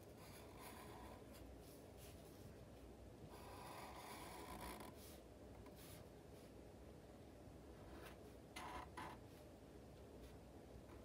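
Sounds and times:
marker scratching on paper: 0.0s - 2.4s, 3.3s - 6.1s, 7.9s - 9.4s.

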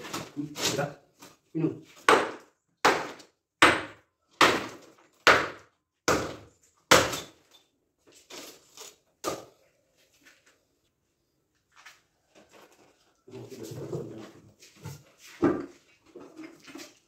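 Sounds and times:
hammer striking concrete: 2.0s - 7.3s.

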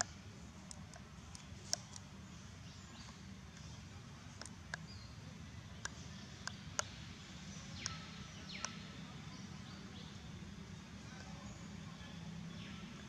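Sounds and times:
sharp ticks: 0.0s - 2.1s.

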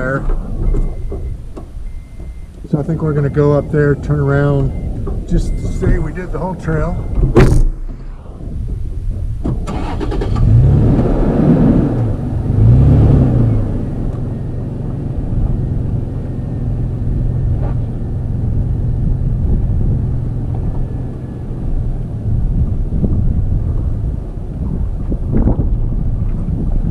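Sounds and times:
truck engine revving: 8.1s - 26.6s.

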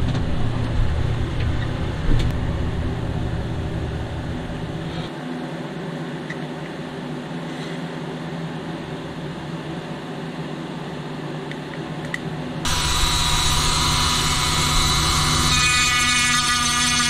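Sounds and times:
rotary tool whining: 12.6s - 17.0s.

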